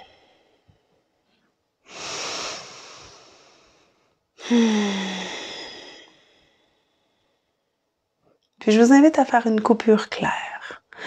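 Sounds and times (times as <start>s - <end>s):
woman inhaling through nose: 1.9s - 6.9s
woman exhaling with low hum: 1.9s - 7.2s.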